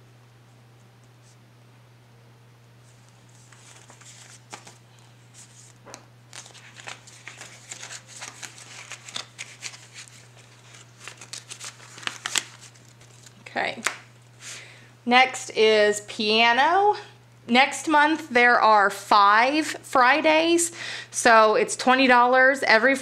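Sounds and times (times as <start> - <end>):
faint low hum: 0.0 - 23.0
banknotes rustling and crinkling: 2.8 - 14.1.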